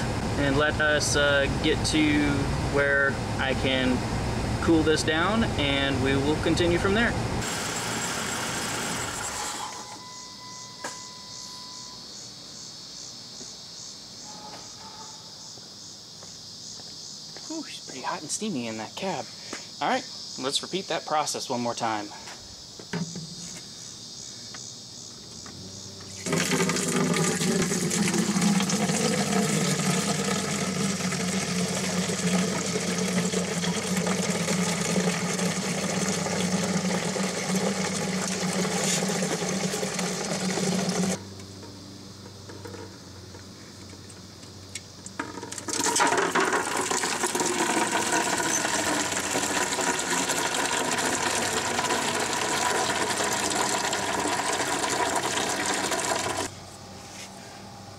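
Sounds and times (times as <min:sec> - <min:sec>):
liquid pouring into plastic container: 0:26.2 - 0:41.2, 0:45.7 - 0:56.5.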